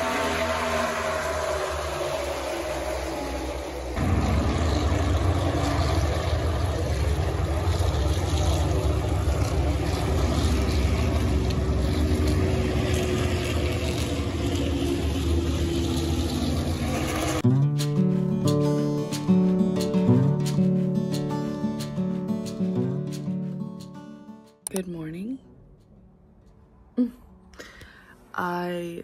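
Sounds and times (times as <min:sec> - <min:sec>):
drone of racing car engines: 0:00.0 - 0:17.5.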